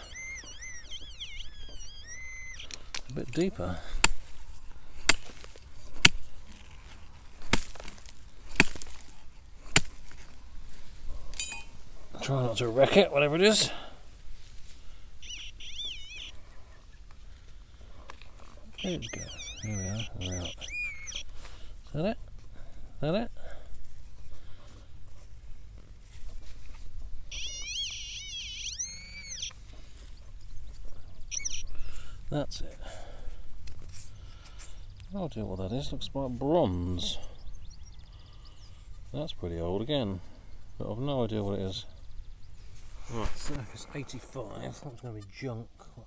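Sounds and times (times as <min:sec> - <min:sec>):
metal detector warbling tone: 0:00.0 - 0:03.6, 0:15.2 - 0:16.4, 0:18.8 - 0:21.2, 0:27.3 - 0:29.5, 0:31.3 - 0:31.8.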